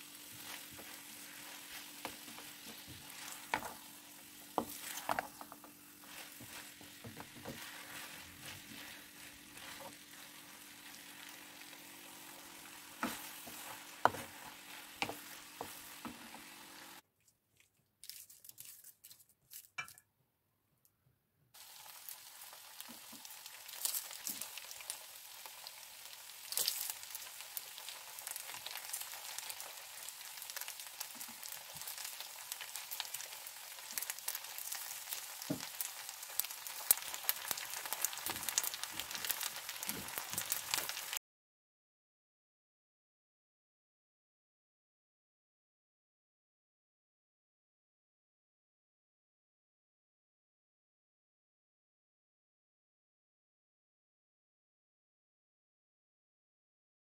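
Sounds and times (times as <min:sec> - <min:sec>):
wooden spoon scraping pan: 0:00.0 - 0:11.0, 0:13.0 - 0:16.8
food sizzling in frying pan: 0:00.0 - 0:17.0, 0:21.6 - 0:41.2.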